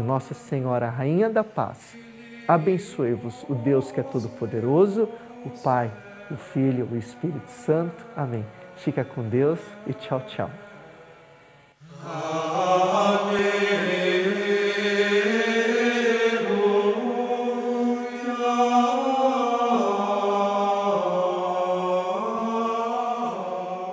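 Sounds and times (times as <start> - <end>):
slow chant-like vocal music: 0.0 - 23.9.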